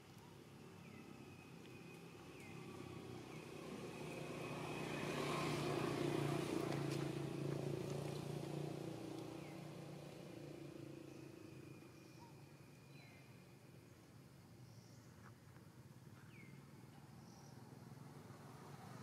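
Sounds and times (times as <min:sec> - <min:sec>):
vehicle passing by: 0:02.4 - 0:11.7, 0:17.6 - 0:19.0.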